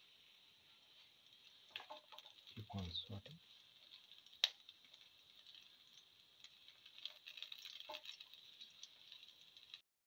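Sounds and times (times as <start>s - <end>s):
shallots sizzling in oil: 0.0s - 9.8s
spatula scraping and tapping a pan: 0.7s - 2.5s, 3.8s - 9.4s.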